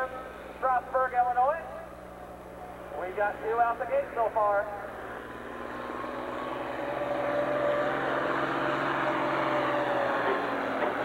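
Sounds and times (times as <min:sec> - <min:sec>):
tractor engine under full load: 0:04.6 - 0:11.0.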